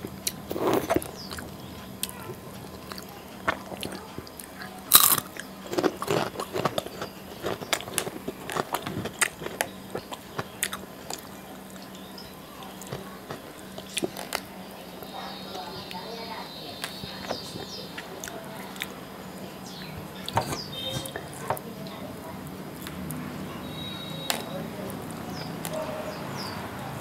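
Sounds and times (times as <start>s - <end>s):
person chewing crunchy food: 0.0s - 14.6s, 16.8s - 21.6s.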